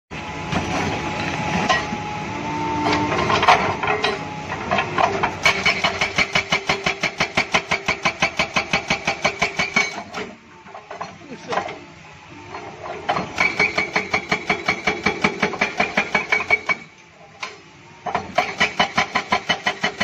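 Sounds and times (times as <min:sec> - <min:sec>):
hydraulic breaker hammering rock: 0:04.9 - 0:10.4, 0:13.1 - 0:16.9, 0:18.1 - 0:20.0.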